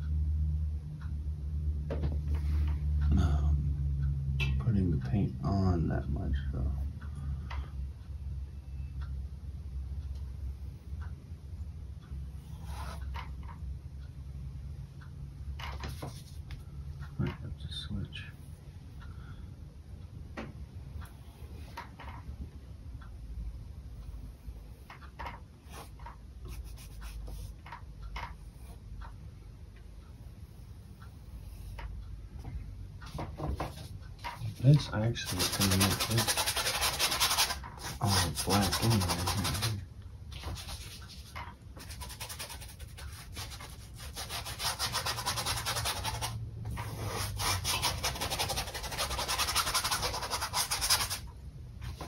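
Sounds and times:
low steady hum: 0.0 - 52.0
paintbrush scrubbing on canvas: 33.7 - 39.8, 40.4 - 51.2.

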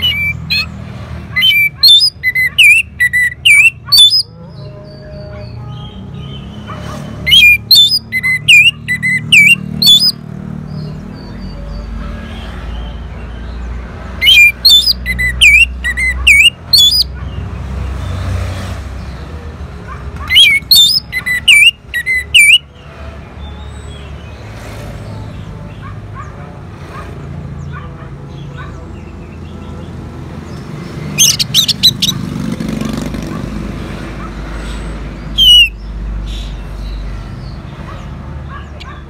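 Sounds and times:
thrush singing: 0.0 - 13.4, 14.2 - 17.2, 30.6 - 32.6, 35.2 - 35.9.

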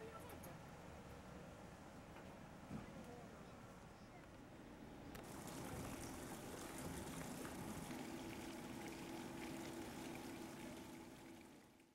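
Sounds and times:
low steady hum: 0.0 - 11.9
water trickling and splashing: 5.2 - 11.9.

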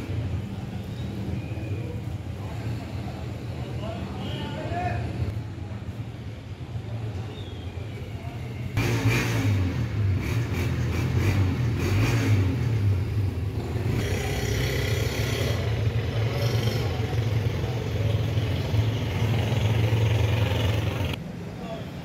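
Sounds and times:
street noise: 0.0 - 22.0
vehicle engine running: 13.0 - 21.2.

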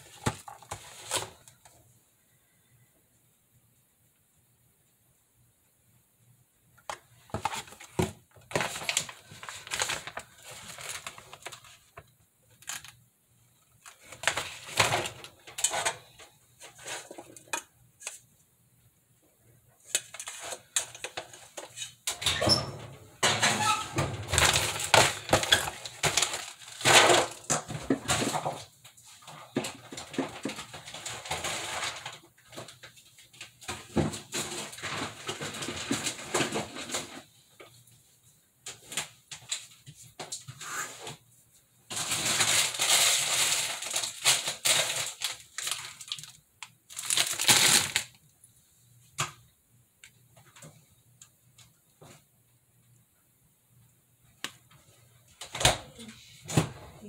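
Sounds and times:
cardboard packaging crinkling: 0.0 - 1.7, 6.9 - 13.0, 13.6 - 17.4, 23.6 - 37.2, 41.9 - 48.2.

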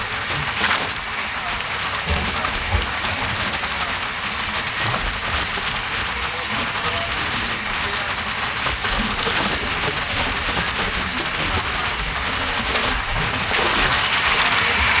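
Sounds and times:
wind and train wheel noise: 0.0 - 15.0
freight train passing alongside: 10.6 - 15.0.

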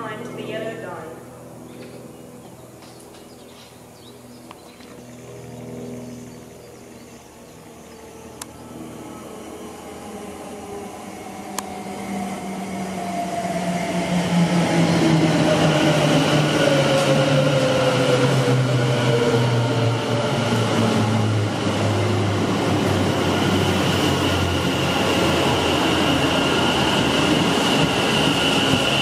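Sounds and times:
electric train motors whining: 6.4 - 29.0.

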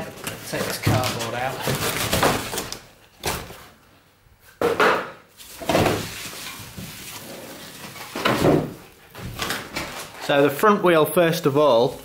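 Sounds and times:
cardboard rustling: 0.0 - 3.8, 5.4 - 10.6
cardboard scraping and knocking: 5.6 - 10.2.

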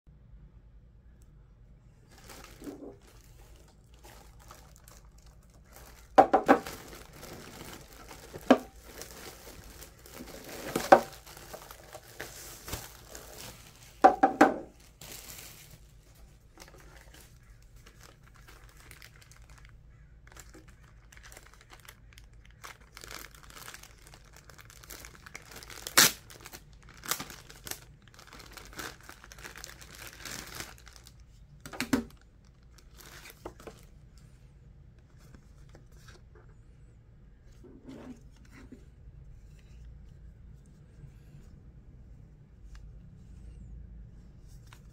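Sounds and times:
plastic wrapping crinkling: 2.0 - 34.3.

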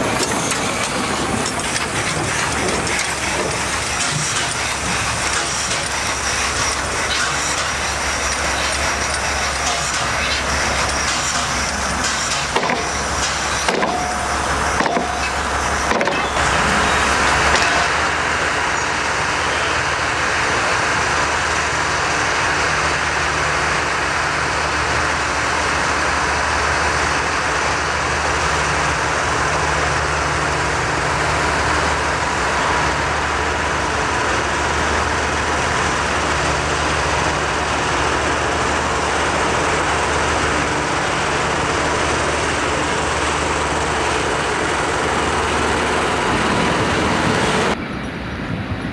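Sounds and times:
steam hissing: 0.0 - 47.8
diesel locomotive engine running: 0.0 - 48.9
sharp knocks: 12.0 - 14.1.

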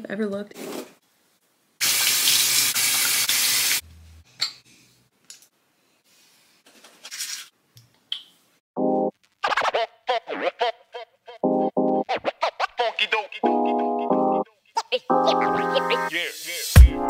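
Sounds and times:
tap water running into sink: 1.8 - 3.8.

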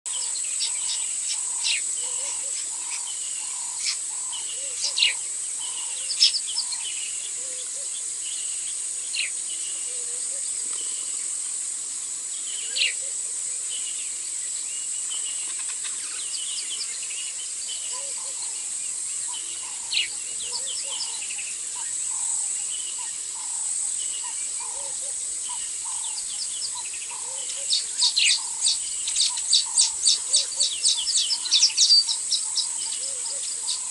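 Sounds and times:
birds chirping: 0.1 - 33.9
insect drone: 0.1 - 33.9
loud repeated bird calls: 17.8 - 33.9.

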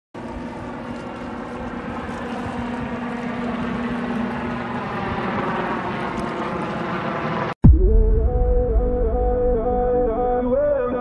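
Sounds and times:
helicopter flying overhead: 0.2 - 7.6.

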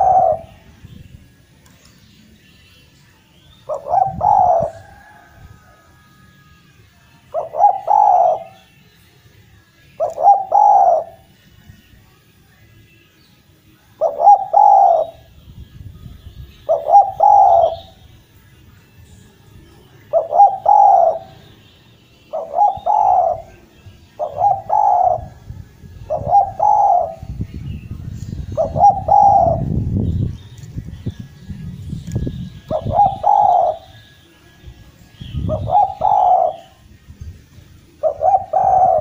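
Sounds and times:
dove cooing: 0.0 - 0.6, 3.6 - 6.0, 7.3 - 8.7, 10.0 - 11.3, 14.0 - 15.3, 16.6 - 18.0, 20.0 - 21.5, 22.3 - 27.4, 28.4 - 29.8, 32.5 - 34.0, 35.3 - 36.8, 37.9 - 39.0.

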